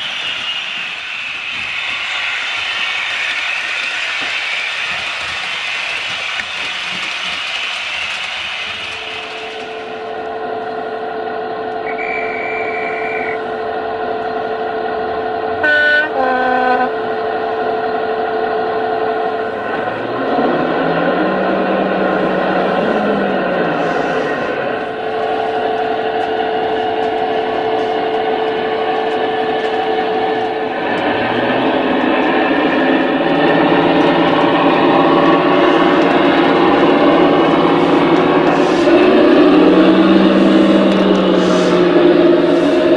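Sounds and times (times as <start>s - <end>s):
diesel engine idling: 8.7s - 42.9s
thin high tone: 11.8s - 13.5s
two-tone train horn: 11.8s - 13.5s, 15.5s - 17.1s, 38.5s - 42.9s.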